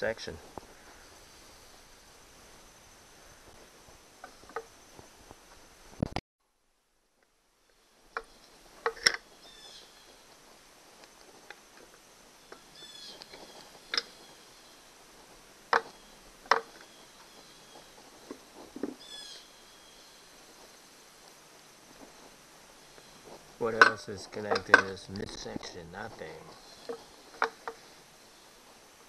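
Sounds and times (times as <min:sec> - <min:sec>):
bird trilling: 0:09.4 - 0:10.1, 0:12.6 - 0:14.7, 0:19.0 - 0:20.2
tools clicking on metal: 0:23.7 - 0:25.0.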